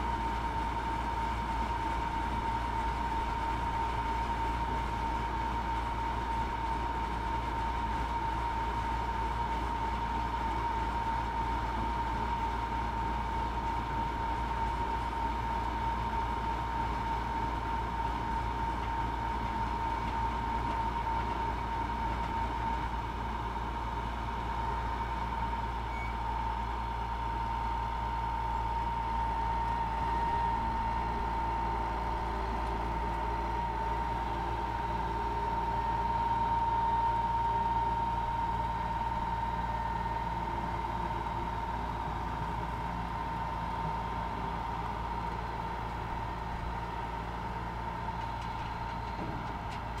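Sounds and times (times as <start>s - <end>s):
low engine hum: 0.0s - 50.0s
harvester high whine: 24.4s - 50.0s.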